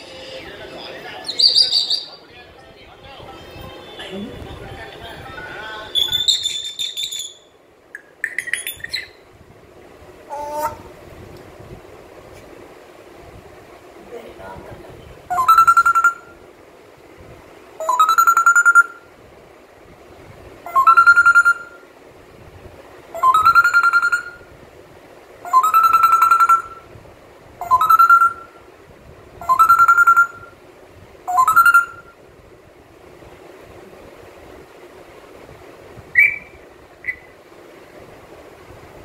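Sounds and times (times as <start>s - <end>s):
parrot whistling call: 1.2s - 2.2s, 5.9s - 9.2s, 15.3s - 16.4s, 17.8s - 19.0s, 20.7s - 21.8s, 23.2s - 24.5s, 25.4s - 26.9s, 27.6s - 28.6s, 29.4s - 30.6s, 31.3s - 32.2s, 36.1s - 37.4s.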